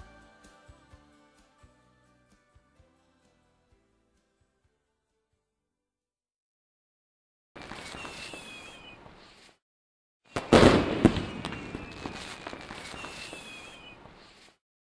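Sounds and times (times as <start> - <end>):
fireworks burst with sharp pops: 7.6 - 9.6, 10.3 - 14.6
fireworks crackling hiss: 7.6 - 9.6, 10.3 - 14.6
falling whistles: 7.7 - 9.0, 10.3 - 14.5.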